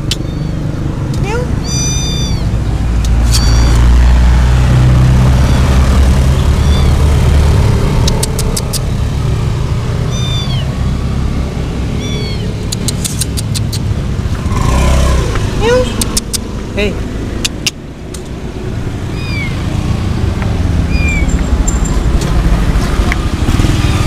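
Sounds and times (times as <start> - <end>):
cats meowing: 0.0 - 4.1, 5.1 - 7.2, 10.0 - 10.9, 11.8 - 12.8, 19.0 - 19.8, 20.8 - 21.3
quick sharp clicks: 8.0 - 8.9, 12.7 - 13.9, 16.0 - 16.5, 17.4 - 18.3.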